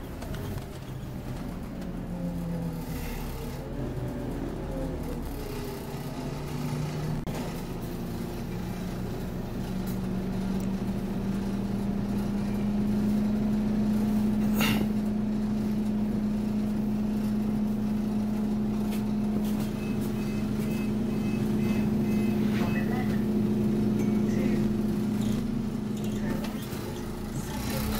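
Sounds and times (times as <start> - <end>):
bus engine droning: 0.0 - 27.9.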